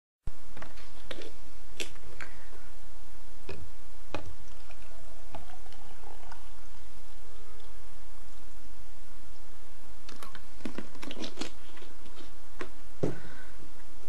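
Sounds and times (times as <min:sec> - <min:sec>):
steady low hum: 0:00.3 - 0:14.0.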